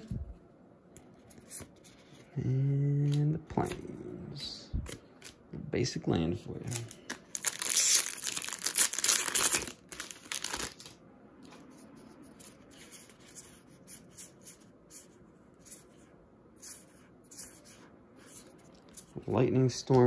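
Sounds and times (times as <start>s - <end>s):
foil wrapper tearing and crinkling: 6.7s - 11.0s.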